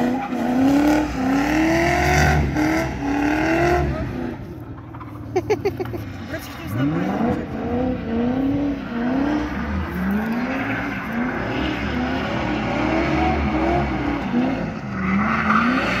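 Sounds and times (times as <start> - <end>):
car engines revving: 0.0 - 16.0
tyre screech: 8.9 - 12.8.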